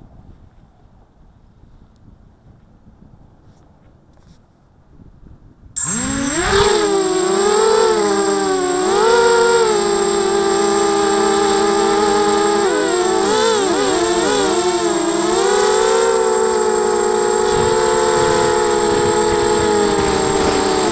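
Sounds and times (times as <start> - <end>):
quadcopter motors whining: 5.8 - 20.9
thin high whine: 5.8 - 20.9.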